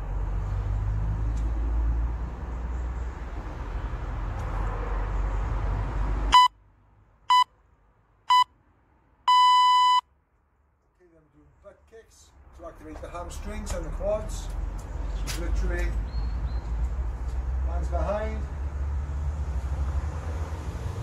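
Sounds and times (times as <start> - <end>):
long electronic beep: 6.3 - 6.5, 9.3 - 10.0
short electronic beeps: 6.3 - 6.5, 9.3 - 10.0.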